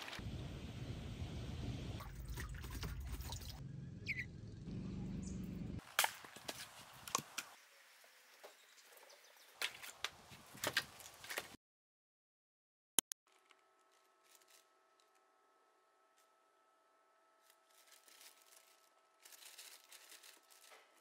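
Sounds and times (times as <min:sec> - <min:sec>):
bird chirp: 0:03.7 - 0:05.8.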